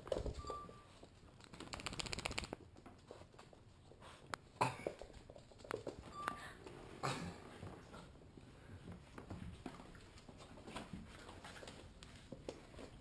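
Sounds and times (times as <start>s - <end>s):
dog claws clicking on wooden floor: 1.3s - 3.4s
dogs scuffling: 7.6s - 13.0s.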